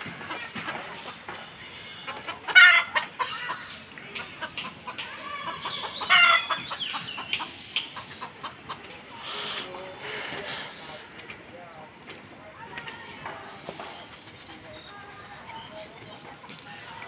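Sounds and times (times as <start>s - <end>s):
chickens clucking: 0.0s - 11.7s, 12.4s - 17.0s
loud chicken calls: 1.7s - 3.7s, 4.4s - 9.7s.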